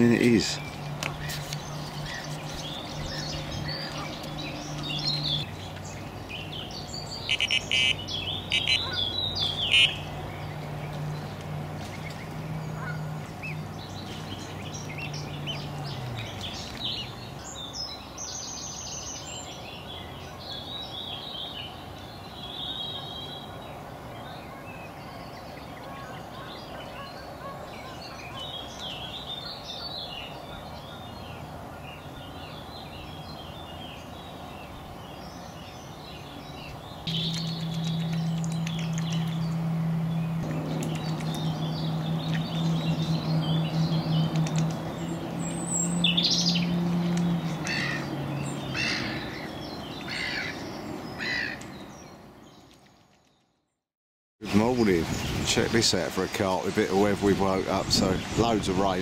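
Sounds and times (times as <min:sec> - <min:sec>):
birds singing and chirping: 0:00.0 - 0:53.5, 0:54.4 - 0:59.0
low hum: 0:37.1 - 0:48.6
speedboat engine droning: 0:37.1 - 0:51.1.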